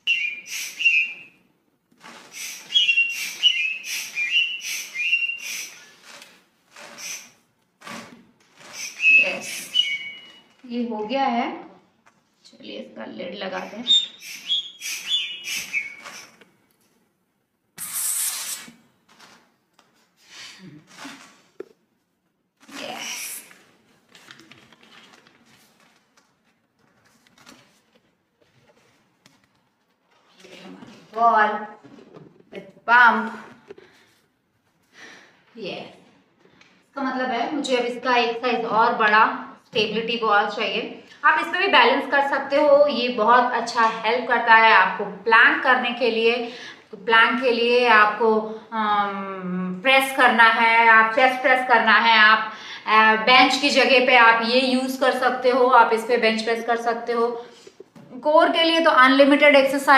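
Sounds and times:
valve whistle: 0.0 - 1.3, 2.4 - 5.9, 8.7 - 10.3, 13.9 - 16.4
foot pump hissing air: 0.4 - 1.1, 2.0 - 6.2, 6.8 - 10.0, 14.1 - 16.4, 17.8 - 18.8.

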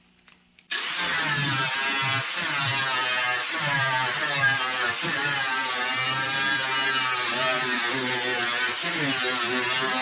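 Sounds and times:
power cutting tool cutting sheet metal: 0.7 - 10.0.

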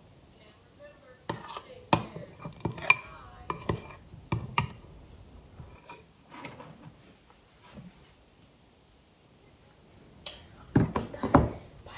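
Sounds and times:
metal spoon clinking on glass dish: 1.3 - 3.9.

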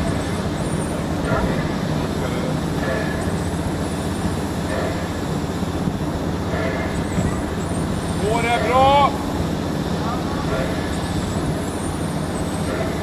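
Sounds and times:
steady low hum: 0.0 - 13.0
steam hissing: 0.0 - 13.0.

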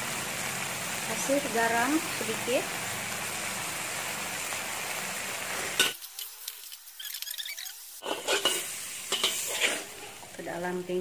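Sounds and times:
vegetables sizzling in a wok: 0.0 - 11.0
metal spatula scraping a wok: 5.6 - 10.3.

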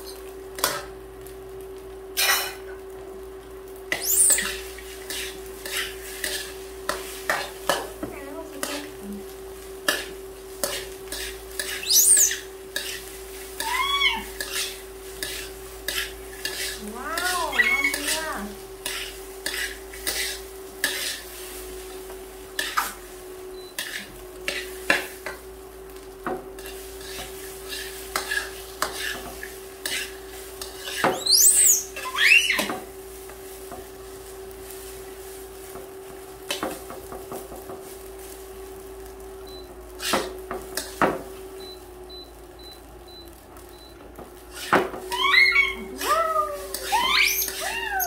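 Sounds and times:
light sizzle: 0.0 - 48.0
spatula scraping a wok: 3.8 - 41.0, 44.3 - 48.0
baby monkey squealing: 4.0 - 4.6, 11.8 - 12.5, 13.6 - 14.3, 17.5 - 18.0, 31.1 - 32.7, 45.1 - 46.2, 46.8 - 48.0.

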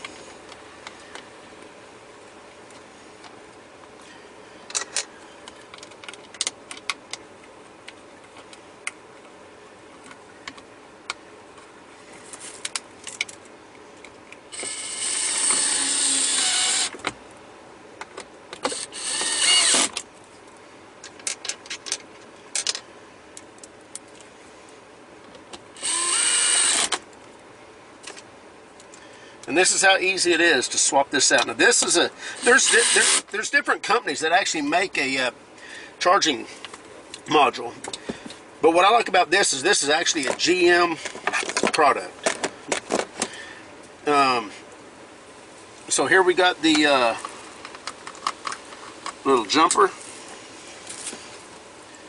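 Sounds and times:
light clicks of handling parts: 2.6 - 14.4, 20.0 - 25.7, 27.0 - 29.6, 36.5 - 39.2
cordless screwdriver running: 14.5 - 17.0, 18.7 - 20.0, 25.8 - 27.0, 32.4 - 33.3.

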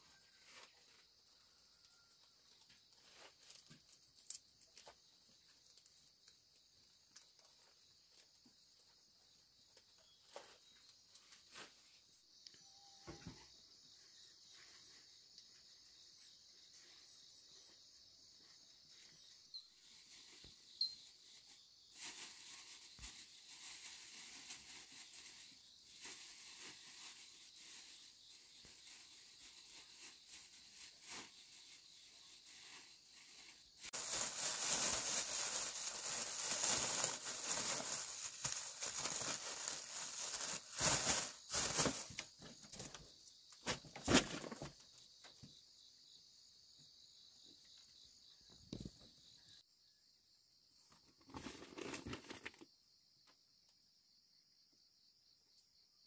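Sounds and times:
rustling and crinkling: 0.1 - 1.3, 2.3 - 12.2, 18.4 - 45.0, 50.9 - 52.7.

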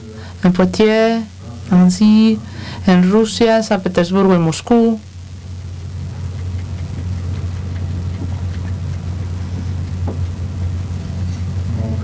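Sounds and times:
low electrical hum: 0.0 - 12.0
faint ticks: 6.1 - 9.1.

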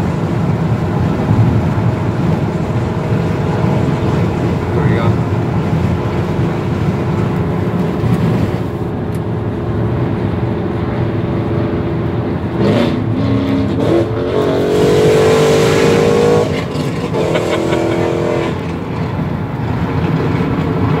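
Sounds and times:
car engine accelerating: 0.0 - 21.0
road noise inside car: 0.0 - 21.0.

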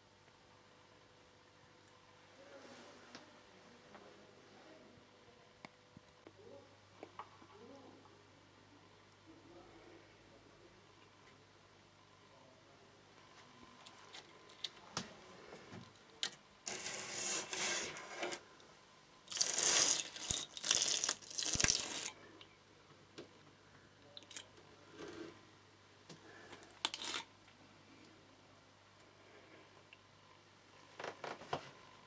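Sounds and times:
plastic film crackling and tearing: 16.7 - 18.4, 19.3 - 22.2, 26.8 - 27.3
clicks and crinkles: 19.3 - 22.2.

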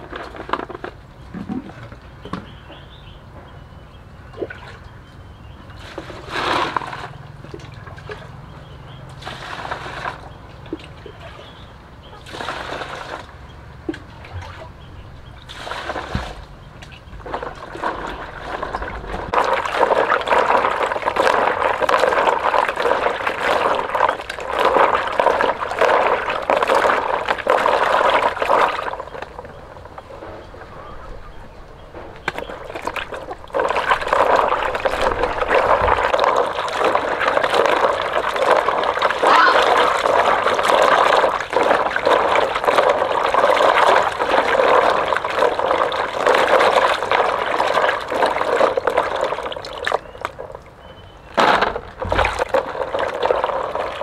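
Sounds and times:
water poured into plastic basin: 5.7 - 8.4, 9.0 - 11.2, 12.2 - 30.0, 32.2 - 50.7, 51.3 - 54.0
hands splashing in water: 32.2 - 50.4.

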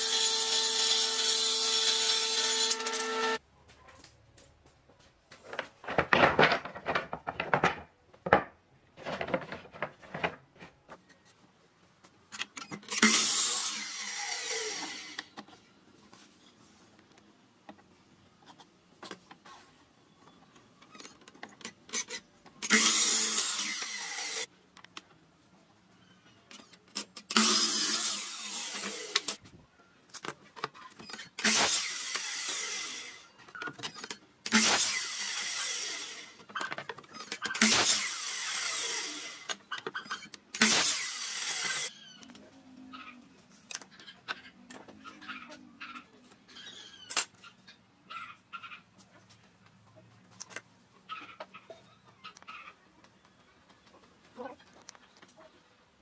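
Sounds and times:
miter saw cutting wood: 0.0 - 3.4, 12.9 - 15.2, 22.6 - 24.5, 27.3 - 29.4, 34.5 - 36.4, 37.4 - 39.5, 40.6 - 41.9.

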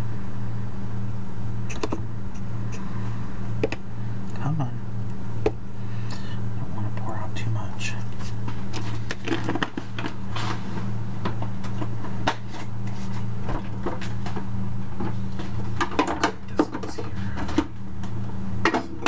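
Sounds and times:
steady low hum: 0.0 - 19.0
kitchen knocks and clatters: 15.0 - 17.7.

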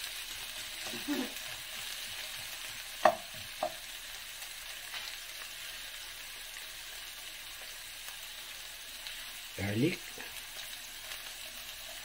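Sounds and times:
onions sizzling in oil: 0.0 - 12.0
spatula knocking against pan: 3.0 - 3.8.

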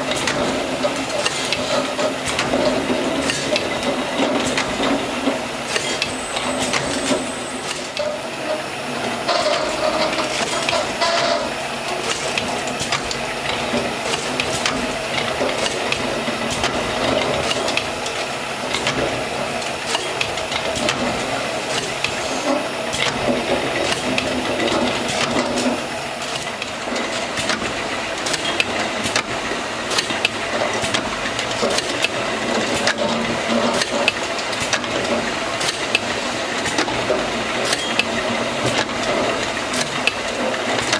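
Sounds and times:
labelling machine whirring: 2.2 - 16.6.

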